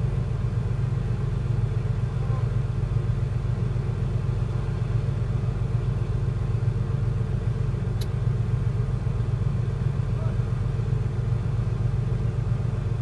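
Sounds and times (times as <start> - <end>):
diesel boat engine rumble: 0.0 - 13.0
brief click: 8.0 - 8.2.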